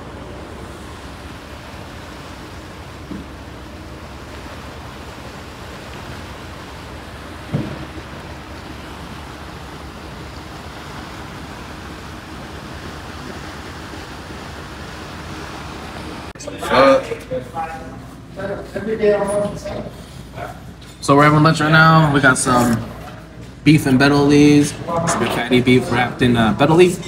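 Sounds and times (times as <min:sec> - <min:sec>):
churning water: 0:00.0 - 0:27.0
short thump: 0:07.5 - 0:08.0.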